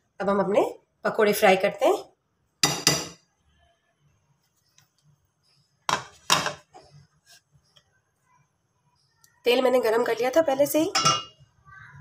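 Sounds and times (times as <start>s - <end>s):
kitchen utensils clinking: 10.8s - 11.4s.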